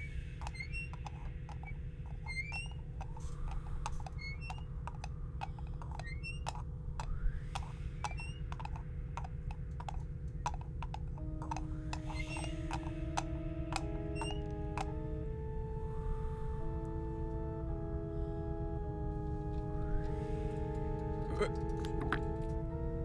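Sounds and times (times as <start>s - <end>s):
rising chirps: 0.0s - 17.2s
steady low rumble: 0.0s - 23.0s.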